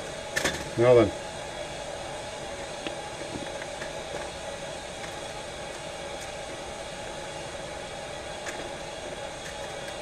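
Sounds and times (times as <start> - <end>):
appliance hissing and humming: 0.0 - 10.0.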